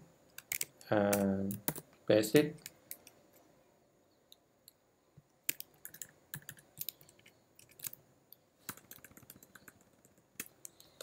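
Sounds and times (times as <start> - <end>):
computer keyboard typing: 0.4 - 1.8, 5.5 - 8.0, 8.7 - 11.0.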